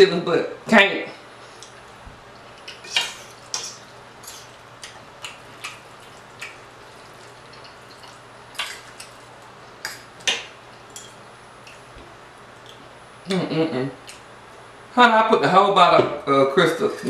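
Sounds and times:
chewing mouth clicks: 1.6s - 9.3s.

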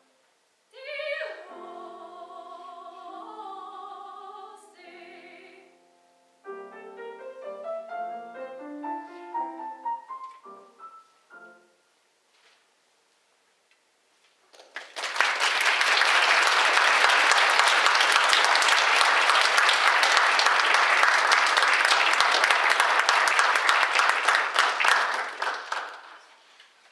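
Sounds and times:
audience applauding: 14.5s - 26.4s.

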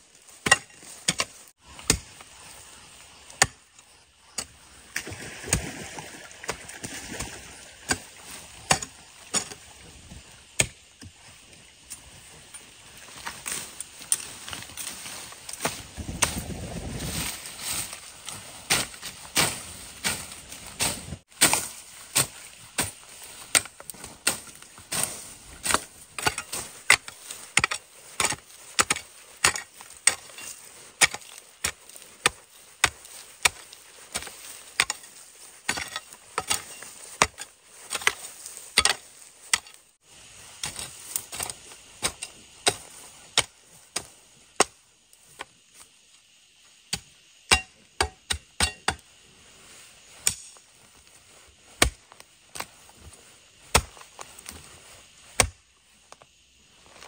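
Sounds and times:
hoe chopping into soil: 0.3s - 2.2s, 18.7s - 39.8s, 51.8s - 52.7s, 53.6s - 54.6s, 55.3s - 55.6s.

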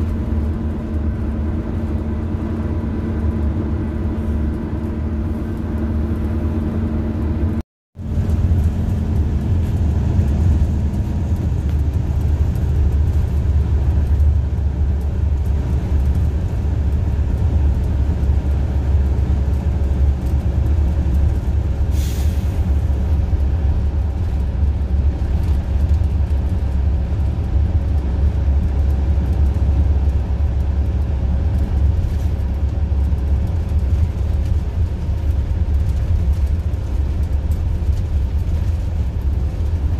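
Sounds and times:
bus engine rumbling: 0.0s - 39.9s
short air hiss: 21.9s - 22.6s.

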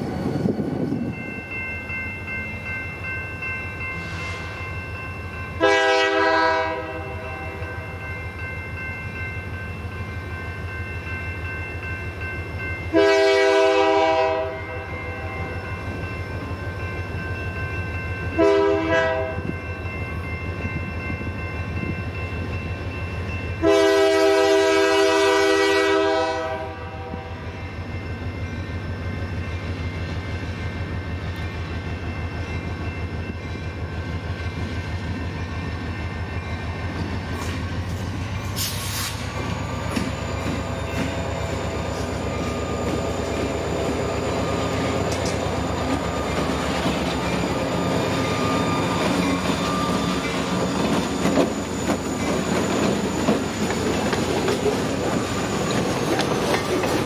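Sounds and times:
locomotive air horn blasts: 5.6s - 7.6s, 12.9s - 15.3s, 18.4s - 19.4s, 23.6s - 27.4s.

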